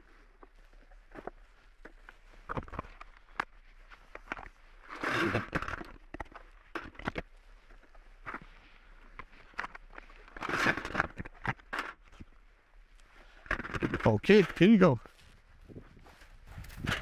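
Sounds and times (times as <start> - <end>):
shotgun shells clicking and rattling: 13.4 - 14.8.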